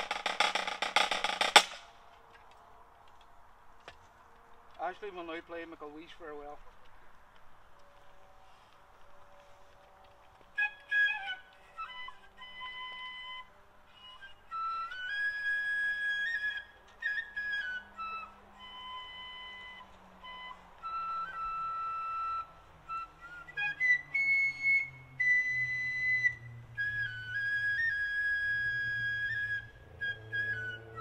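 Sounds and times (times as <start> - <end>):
solo flute playing slow air: 8.2 - 31.0.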